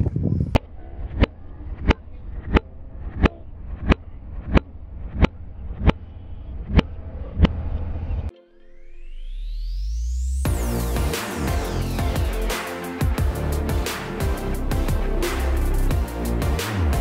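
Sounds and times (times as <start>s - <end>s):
wind on microphone: 0.0s - 3.2s.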